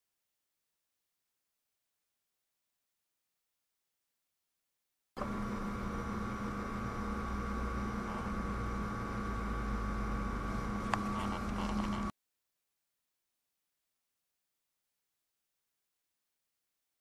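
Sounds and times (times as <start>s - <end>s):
mechanical hum: 5.2s - 12.2s.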